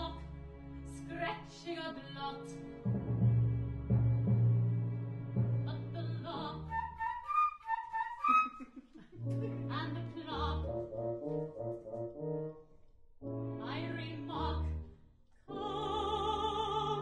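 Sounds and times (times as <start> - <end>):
orchestra playing: 9.2 - 12.6.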